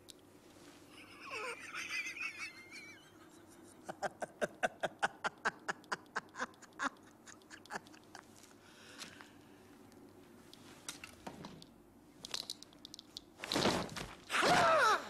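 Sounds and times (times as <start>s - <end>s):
man laughing loudly: 0.9s - 8.3s.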